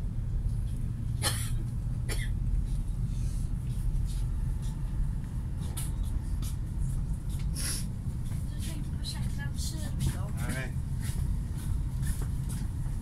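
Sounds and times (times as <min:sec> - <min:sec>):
train carriage rumble: 0:00.0 - 0:13.0.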